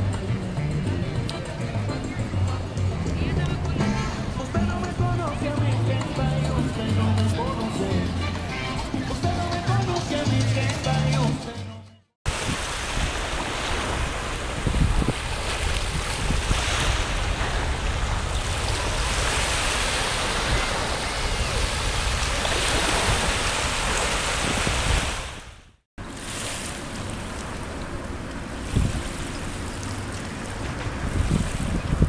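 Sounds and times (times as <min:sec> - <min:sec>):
wind buffeting microphone: 0:12.3 - 0:25.7, 0:26.4 - 0:32.0
small waves washing ashore: 0:12.3 - 0:32.0.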